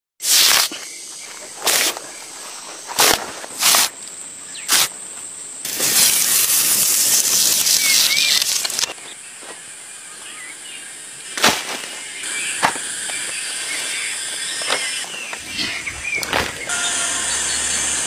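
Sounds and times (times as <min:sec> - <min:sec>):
bark tearing from tree trunk: 0:05.7 - 0:08.9.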